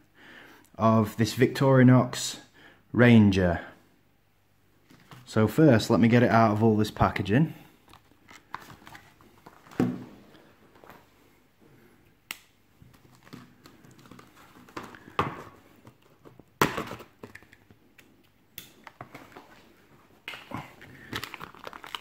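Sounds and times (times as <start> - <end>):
plastic packaging clicking: 20.3 - 22.0.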